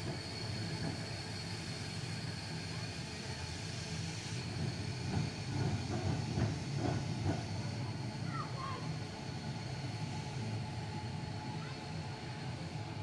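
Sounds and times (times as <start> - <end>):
electric tram rumbling on track: 0.0 - 13.0.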